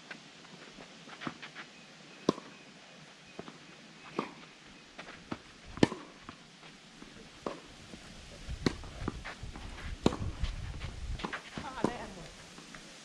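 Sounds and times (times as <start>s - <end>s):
tennis ball struck by rackets: 5.8s - 6.2s, 7.4s - 7.7s, 8.6s - 8.9s, 10.0s - 10.3s, 11.2s - 12.1s.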